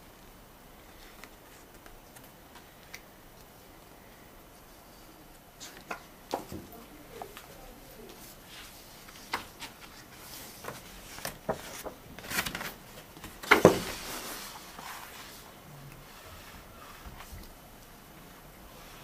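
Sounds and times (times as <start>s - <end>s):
loud paper crinkle: 8.4s - 12.8s
paper taps and rustles: 9.0s - 14.2s.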